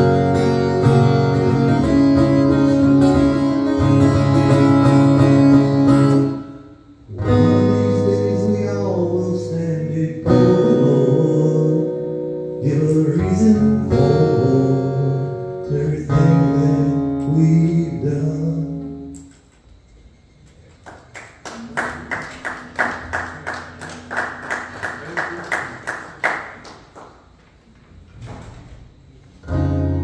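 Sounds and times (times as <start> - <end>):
strummed acoustic guitar: 0.0 - 19.2, 29.4 - 30.0
man singing: 7.1 - 19.2
people clapping: 20.4 - 27.9.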